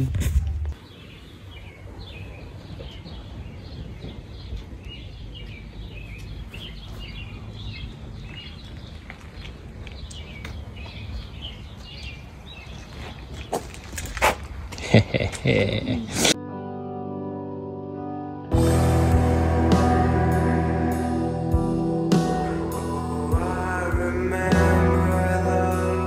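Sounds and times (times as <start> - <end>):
small birds chirping: 0.7 - 14.2.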